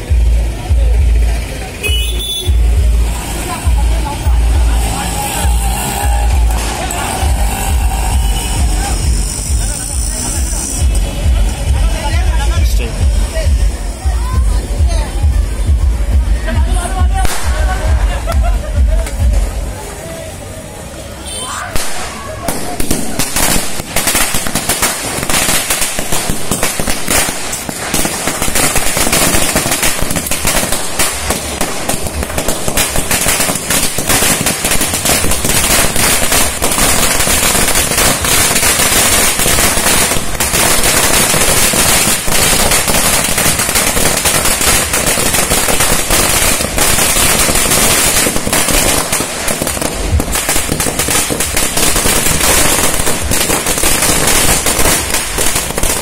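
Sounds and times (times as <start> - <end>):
firecrackers rattling: 0.0 - 19.9, 21.7 - 56.0.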